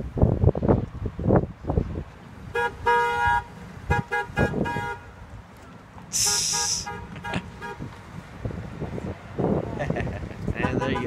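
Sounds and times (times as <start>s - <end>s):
vehicle horn toots: 2.5s - 5.1s, 6.2s - 7.9s, 10.6s - 11.0s
loud high hiss: 6.1s - 6.9s.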